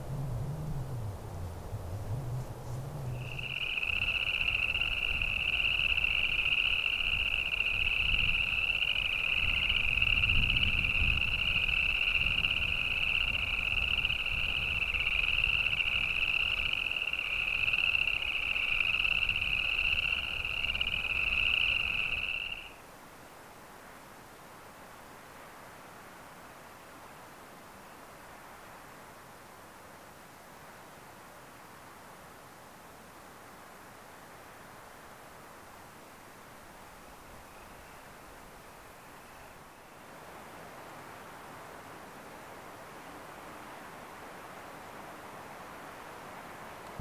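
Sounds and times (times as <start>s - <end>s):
frogs trilling: 3.1s - 22.8s.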